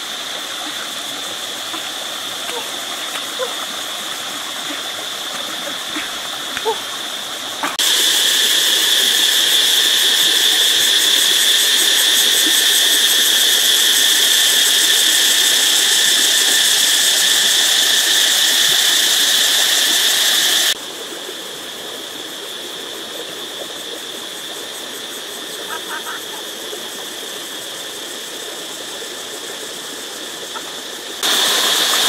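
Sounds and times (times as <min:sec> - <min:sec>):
high-pitched insect drone: 0:00.0 - 0:32.0.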